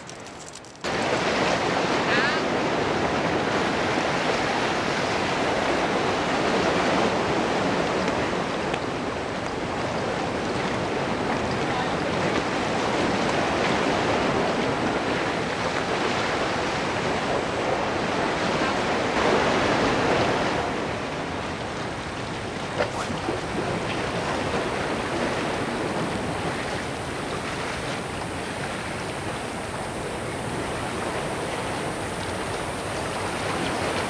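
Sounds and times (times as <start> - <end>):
sea water washing against rocks: 0.0 - 4.2, 22.7 - 26.2
wind on microphone: 0.0 - 34.0.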